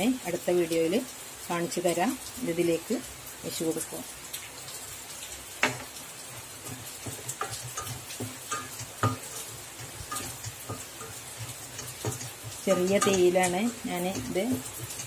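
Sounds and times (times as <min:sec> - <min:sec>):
faint sizzle: 0:00.0 - 0:15.0
spatula stirring thick paste: 0:06.3 - 0:15.0
spatula knocking against pan: 0:06.6 - 0:15.0.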